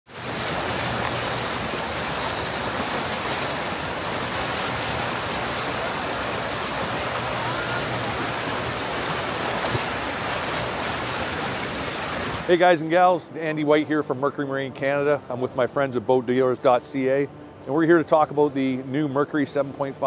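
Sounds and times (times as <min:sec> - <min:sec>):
propeller churning water: 0:00.1 - 0:12.6.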